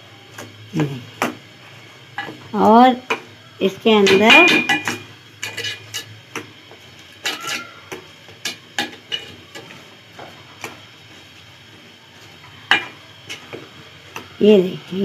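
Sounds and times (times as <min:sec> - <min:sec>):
spoon scraping a metal pot: 0:04.1 - 0:06.2, 0:08.8 - 0:09.6.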